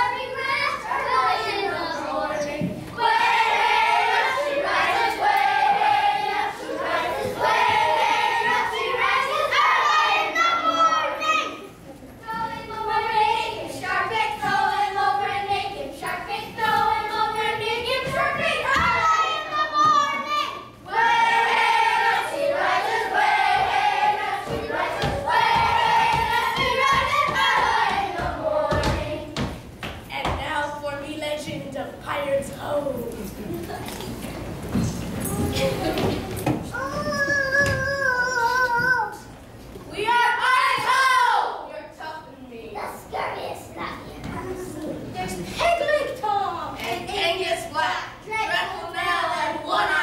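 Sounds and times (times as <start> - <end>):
children singing in unison: 0.9 - 10.4, 20.8 - 29.5.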